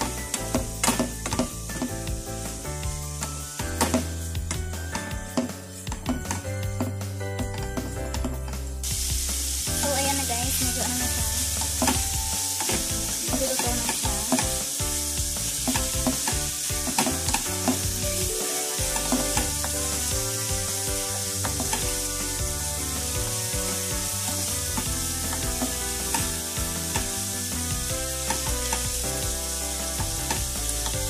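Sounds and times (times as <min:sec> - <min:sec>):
cabbage sizzling in a frying pan: 0:00.0 - 0:06.4, 0:07.8 - 0:31.0
wooden spatula scraping a pan: 0:15.4 - 0:29.0.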